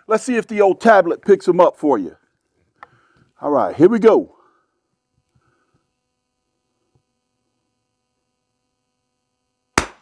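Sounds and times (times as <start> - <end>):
faint steady hum: 0.0 - 10.0
rifle shot: 9.8 - 10.0.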